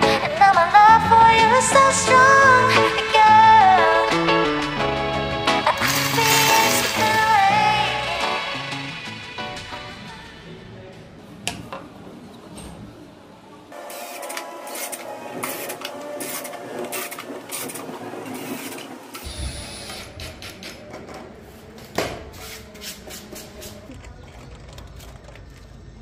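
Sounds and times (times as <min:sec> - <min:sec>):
machine whirring and clattering: 0:05.8 - 0:07.4, 0:13.8 - 0:21.2, 0:23.9 - 0:26.0.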